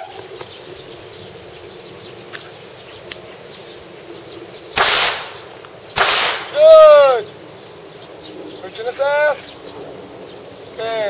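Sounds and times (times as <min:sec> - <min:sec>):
faint birdsong: 0:00.0 - 0:11.0
pistol shots: 0:04.8 - 0:06.6.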